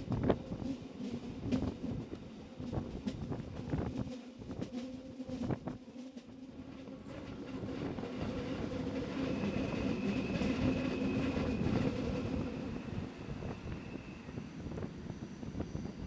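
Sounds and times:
high wheel squeal: 12.7s - 16.0s.

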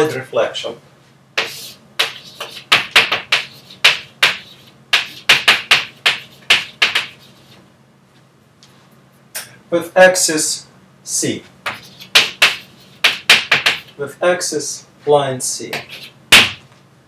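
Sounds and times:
chalk writing on a blackboard: 1.4s - 7.6s, 11.6s - 14.0s, 15.7s - 16.4s.

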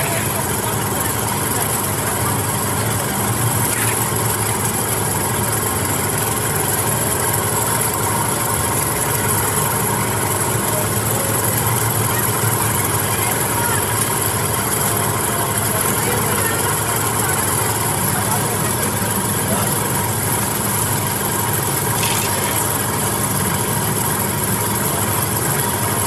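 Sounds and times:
cotton candy machine humming: 0.0s - 26.0s.

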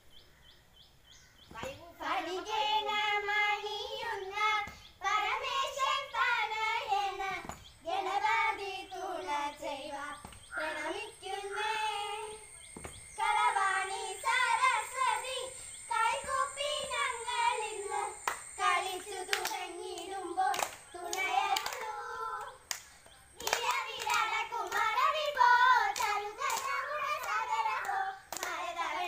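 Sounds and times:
girls singing together: 1.5s - 29.0s
hands clapping in time: 17.9s - 24.9s, 25.9s - 28.6s.

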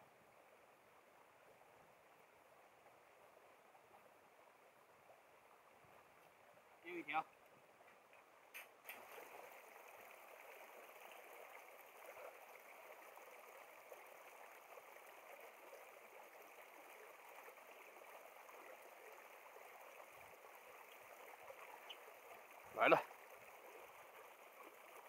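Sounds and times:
stream water flowing: 0.0s - 25.0s.

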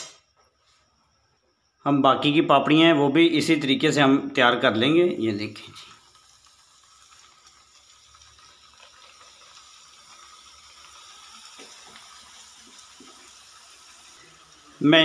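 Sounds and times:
dough frying in hot oil: 4.9s - 15.0s.

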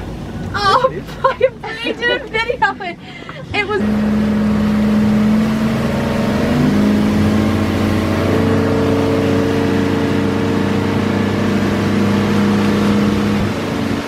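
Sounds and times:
outboard motor drone: 3.5s - 14.0s.

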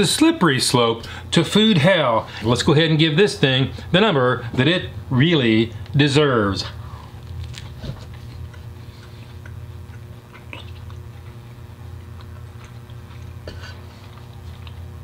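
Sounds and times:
steady low hum: 0.0s - 15.0s
man chewing: 6.6s - 15.0s.

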